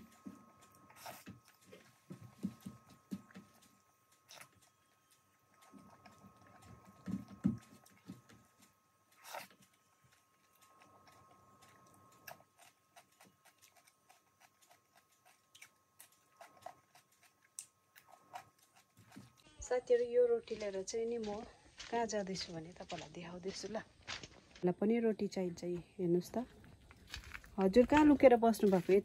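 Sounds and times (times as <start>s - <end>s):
chewing and crunching cucumber: 0.0s - 19.4s, 26.6s - 28.8s
faint steady high tone: 19.4s - 20.4s.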